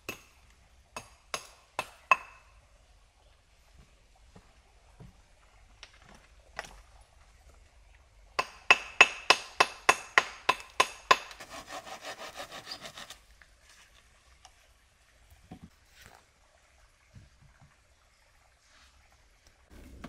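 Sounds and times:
hand saw cutting wood: 0:11.1 - 0:13.2.

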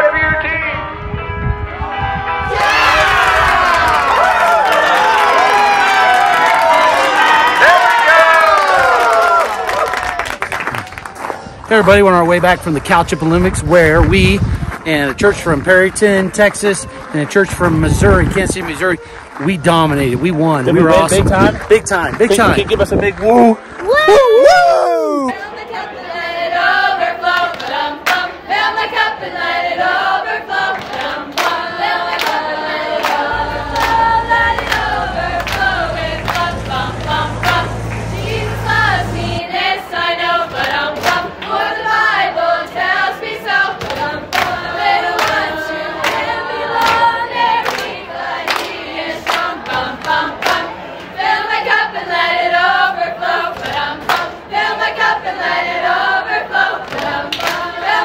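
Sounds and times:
group singing together: 0:25.3 - 0:58.0
rhythmic hand clapping: 0:27.2 - 0:28.4, 0:30.5 - 0:39.3, 0:40.5 - 0:41.9, 0:43.4 - 0:51.7, 0:53.4 - 0:55.1, 0:56.6 - 0:58.0.

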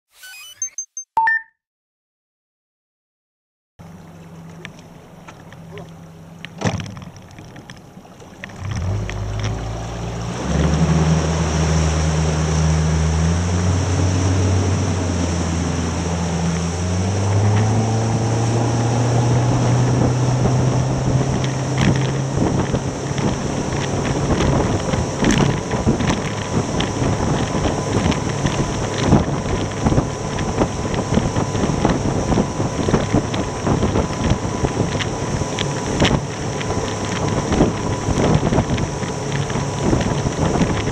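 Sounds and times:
outboard motor revving up: 0:03.8 - 0:40.9
wind and water rushing: 0:03.8 - 0:40.9
wind buffeting the microphone: 0:13.6 - 0:40.9.

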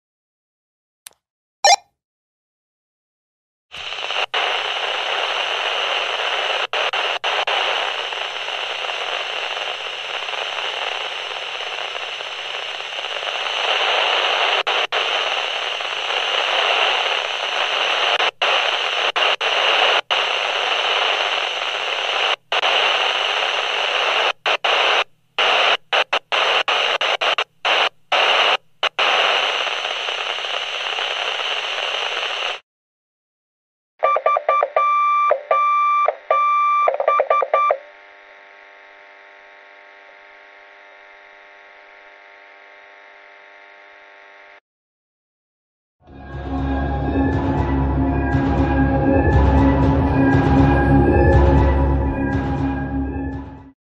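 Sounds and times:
walkie-talkie static hissing: 0:03.7 - 0:32.6, 0:35.5 - 0:43.1
choppy electronic radio tones: 0:03.8 - 0:32.6, 0:34.0 - 0:44.6.

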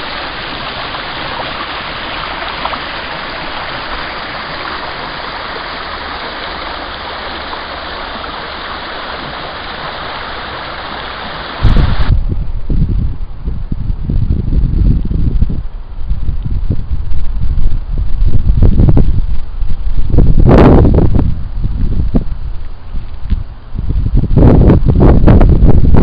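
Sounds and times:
water rushing over stones: 0:00.0 - 0:12.2
wind buffeting microphone: 0:00.0 - 0:26.0.

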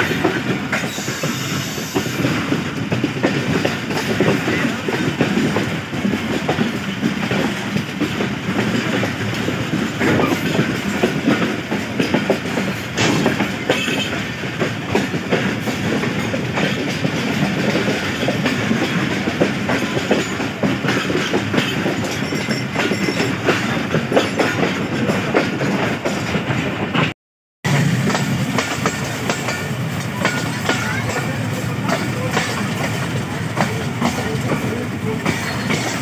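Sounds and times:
train rumble: 0:00.0 - 0:27.1, 0:27.7 - 0:36.0
train wheels clickety-clack: 0:00.0 - 0:27.1, 0:27.7 - 0:36.0.

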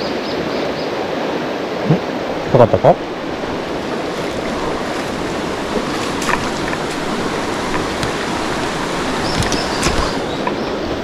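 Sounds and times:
river water rushing: 0:00.0 - 0:11.0
heavy rain falling: 0:03.0 - 0:11.0.

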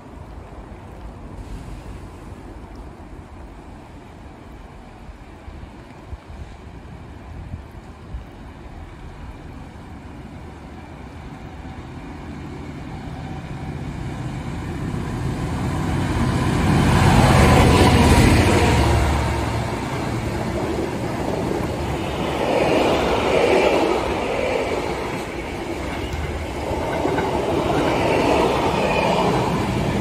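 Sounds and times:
diesel locomotive passing: 0:08.6 - 0:30.0.

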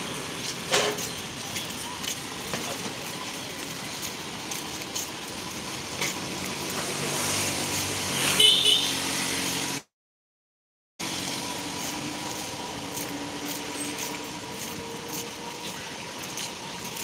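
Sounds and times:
street traffic: 0:00.0 - 0:09.9, 0:11.0 - 0:17.0
vehicle engine passing close: 0:05.7 - 0:09.9.

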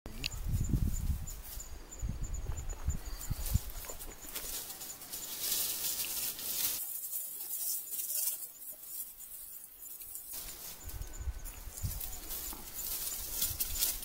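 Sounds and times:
high-pitched hiss: 0:00.1 - 0:14.0.

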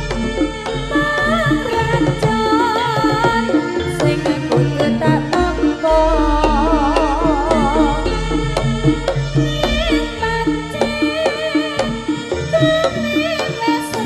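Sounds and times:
hand drums beating: 0:00.0 - 0:14.0
high wavering melody: 0:00.0 - 0:14.0
metallophone and gong tones: 0:05.0 - 0:12.5.

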